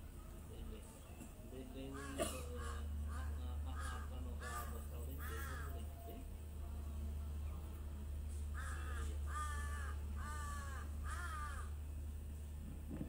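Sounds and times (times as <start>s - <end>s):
low hum: 0.0s - 13.0s
crow cawing: 1.9s - 5.9s, 8.5s - 11.8s.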